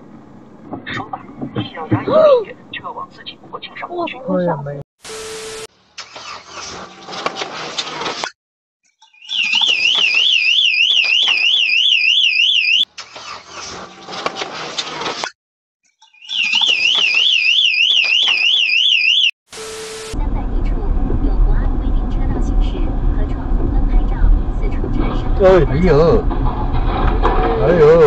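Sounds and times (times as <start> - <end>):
car alarm rattling tone: 9.1 - 12.9, 16.2 - 19.3
car alarm siren warbling: 9.2 - 12.9, 16.2 - 20.2.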